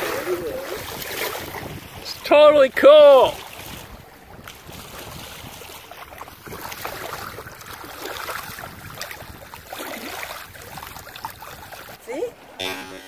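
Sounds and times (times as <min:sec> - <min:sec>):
wind buffeting microphone: 0:00.0 - 0:12.5
water splashing along hull: 0:00.0 - 0:13.0.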